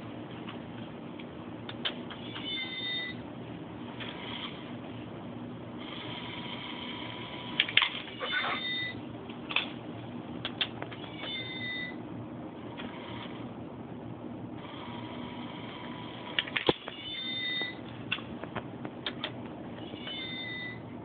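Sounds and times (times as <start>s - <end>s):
high-pitched toy meow: 2.2s - 3.2s, 8.2s - 8.9s, 11.0s - 12.0s, 16.9s - 17.8s, 19.8s - 20.8s.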